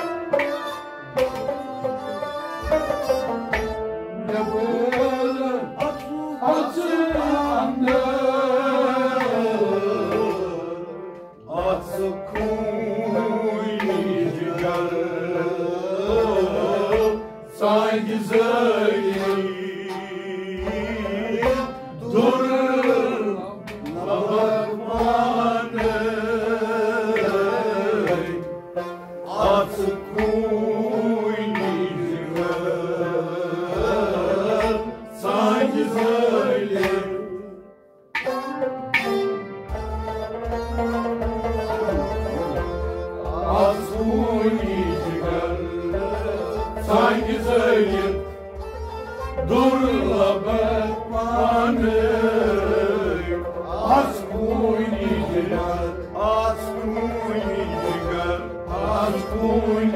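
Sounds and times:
instrumental accompaniment: 0.0s - 59.9s
person singing: 4.1s - 28.5s, 29.1s - 37.6s, 41.8s - 48.2s, 49.3s - 59.9s
tabla strokes: 38.2s - 50.4s.

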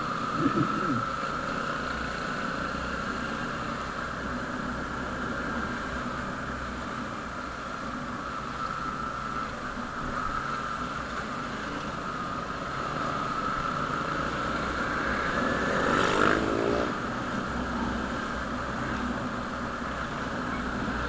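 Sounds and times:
motorcycle passing by: 0.0s - 6.4s, 10.2s - 19.4s
motorcycle engine whine: 0.0s - 21.0s
road and wind noise: 0.0s - 21.0s.

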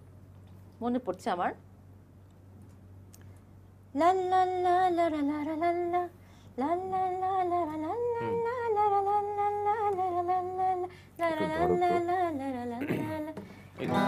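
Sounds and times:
person humming: 8.0s - 8.6s, 11.2s - 14.0s.

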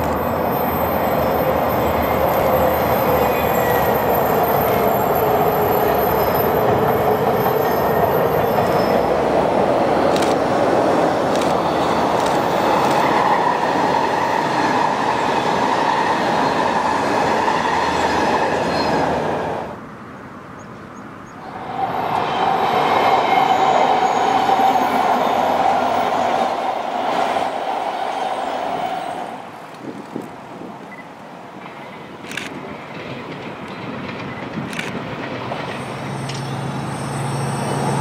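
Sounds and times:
electric train on rails: 0.0s - 38.0s.

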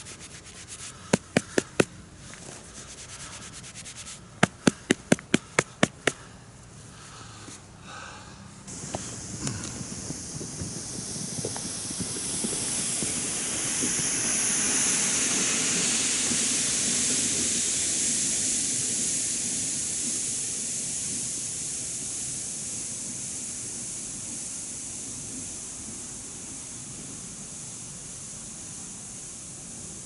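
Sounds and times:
sled dragged over snow: 8.7s - 21.5s.

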